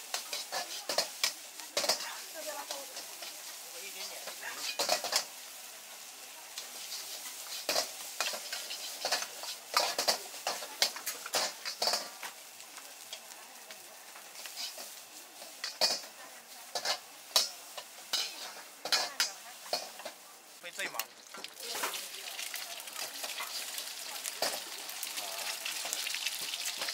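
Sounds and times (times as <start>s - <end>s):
metal ladle scraping wok: 0.0s - 5.4s, 6.6s - 12.3s, 14.3s - 16.1s, 16.7s - 20.2s
food sizzling: 0.0s - 26.9s.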